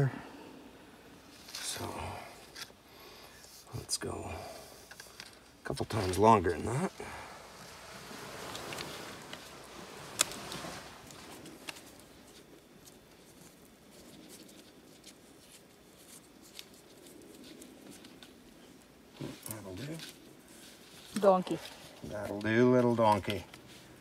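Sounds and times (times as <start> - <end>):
plastic tape rustling and crinkling: 10.2 - 23.8.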